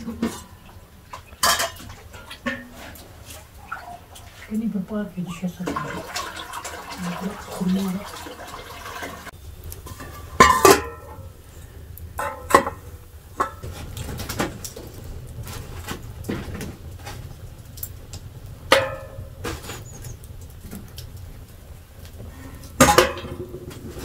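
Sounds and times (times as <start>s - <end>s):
metallic clanks and knocks: 9.8s - 11.2s, 12.2s - 17.9s, 18.7s - 19.9s, 22.8s - 24.0s.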